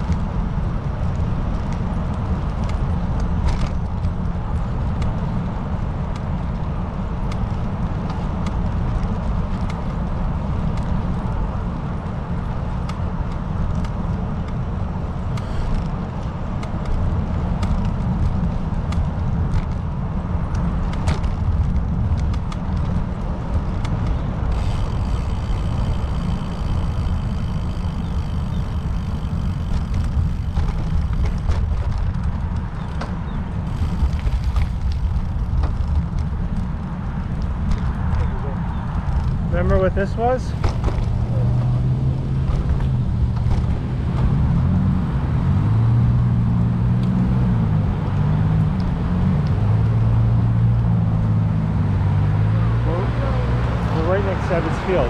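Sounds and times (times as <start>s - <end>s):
car road and wind noise: 0.0s - 55.0s.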